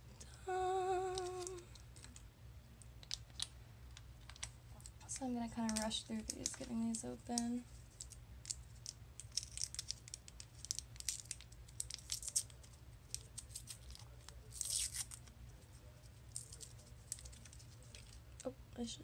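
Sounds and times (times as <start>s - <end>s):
low steady hum: 0.0s - 19.0s
paper wrapper crinkling: 0.9s - 2.2s, 4.2s - 18.5s
paper tearing: 13.5s - 15.2s.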